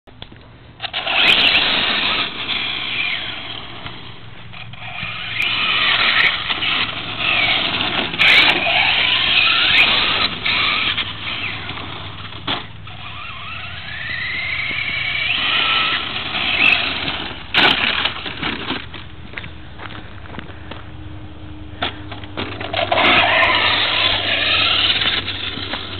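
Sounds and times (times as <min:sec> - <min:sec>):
electric motor whining: 0:00.8 - 0:18.8, 0:22.0 - 0:25.9
tyres spinning on gravel: 0:00.8 - 0:21.0, 0:21.7 - 0:25.9.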